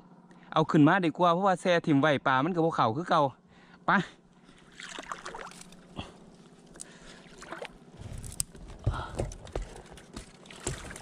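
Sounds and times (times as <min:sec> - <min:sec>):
person wading in shallow water: 0:04.4 - 0:08.2
brush snapping: 0:07.6 - 0:08.6.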